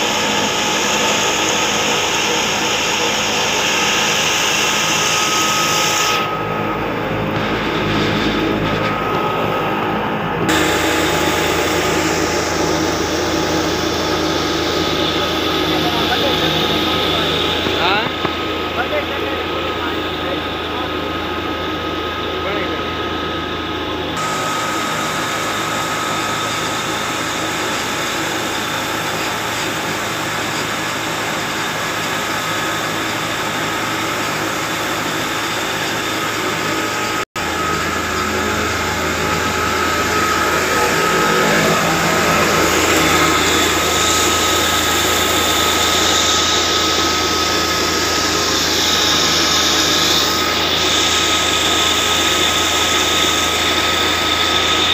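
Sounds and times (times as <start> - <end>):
stone mill grinding: 0.0 - 6.3, 24.2 - 54.9
spinning pulleys and belts: 0.0 - 54.9
thin mechanical whine: 0.0 - 54.9
tractor diesel engine: 0.0 - 54.9.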